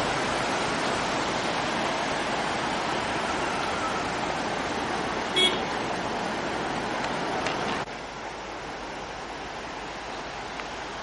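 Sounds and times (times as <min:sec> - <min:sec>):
steady rushing noise: 0:00.0 - 0:11.0
vehicle horn toot: 0:05.3 - 0:05.7.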